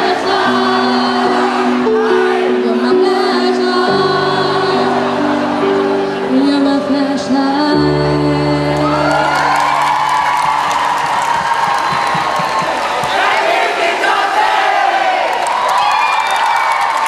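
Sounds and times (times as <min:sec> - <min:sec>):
group singing over held chords: 0:00.0 - 0:08.9.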